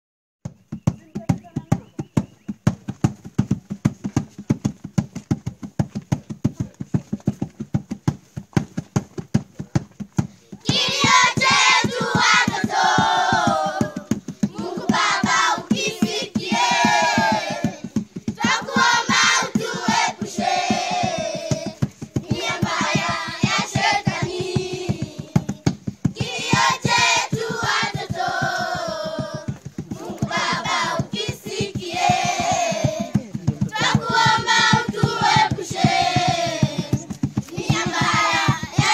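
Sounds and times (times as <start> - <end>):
children clapping a beat: 10.0 - 38.9
children singing together: 10.7 - 25.5, 26.2 - 38.9.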